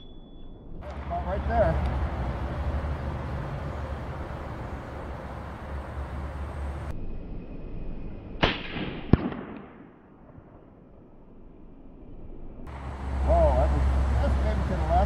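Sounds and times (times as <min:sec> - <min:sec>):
pistol shots with echo: 0:08.4 - 0:10.0.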